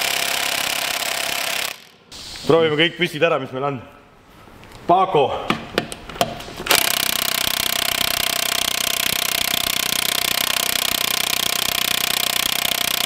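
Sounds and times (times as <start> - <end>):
impact wrench hammering: 0.0 - 2.0, 6.7 - 13.0.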